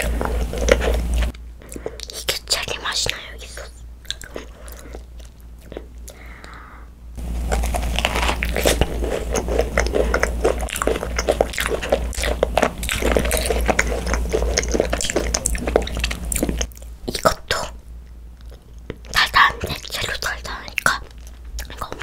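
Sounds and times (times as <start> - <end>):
biting and chewing crunchy macaron: 0.0 - 6.6, 7.2 - 22.0.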